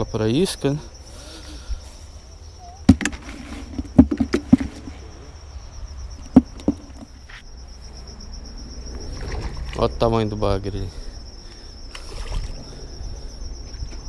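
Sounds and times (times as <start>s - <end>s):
insects chirring: 0.0s - 14.0s
sharp knocks and taps: 2.9s - 4.9s, 6.2s - 7.1s.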